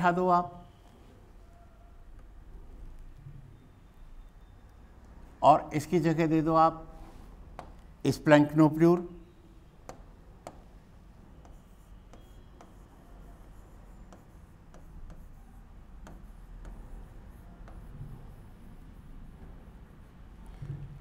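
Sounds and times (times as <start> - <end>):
stylus tapping on touchscreen: 7.5 - 8.0, 9.8 - 10.8, 11.4 - 12.9, 13.9 - 15.4, 16.0 - 18.1
stylus scratching on touchscreen: 11.2 - 21.0.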